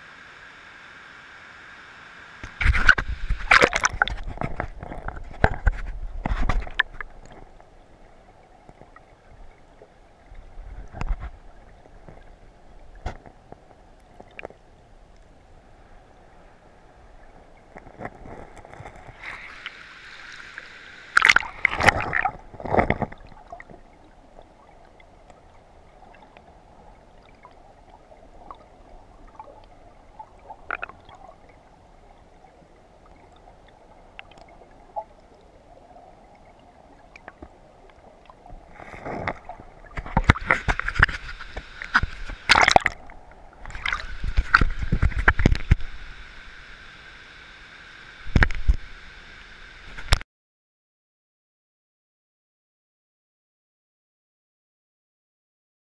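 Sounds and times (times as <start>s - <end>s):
water splashing: 2.4s - 13.4s, 17.8s - 31.7s, 36.4s - 46.9s
water gurgling underwater: 2.6s - 7.5s, 21.2s - 25.0s, 25.9s - 31.6s, 38.3s - 45.9s.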